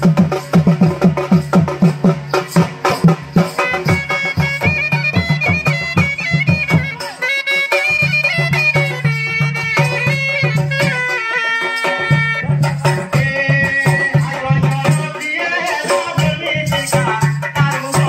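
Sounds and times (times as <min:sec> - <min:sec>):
barrel drums beating: 0:00.0 - 0:18.0
nasal double-reed pipe melody: 0:02.9 - 0:14.6.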